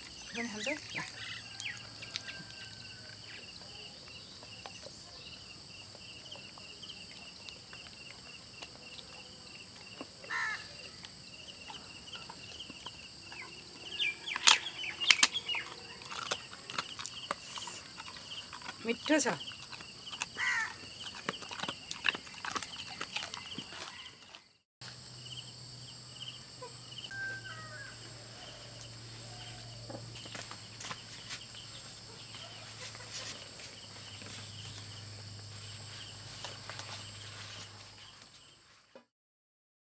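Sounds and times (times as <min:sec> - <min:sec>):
insect chirping in pulses: 0:24.9 - 0:30.8.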